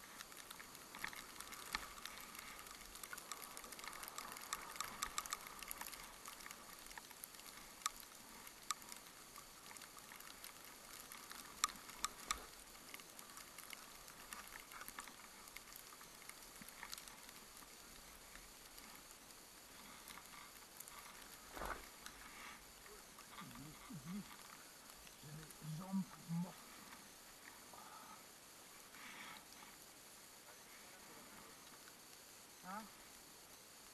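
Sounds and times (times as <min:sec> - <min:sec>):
skis hissing over snow: 0:00.0 - 0:33.9
sharp clicks: 0:00.2 - 0:17.1.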